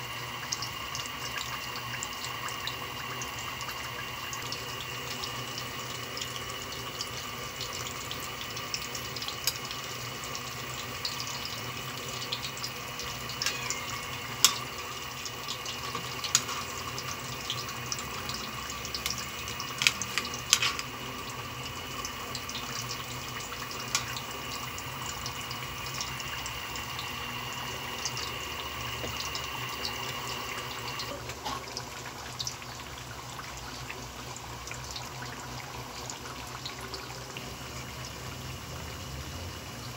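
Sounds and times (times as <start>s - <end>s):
food sizzling in hot oil: 0.0s - 39.9s
metal utensil clinking on pan: 19.8s - 20.9s.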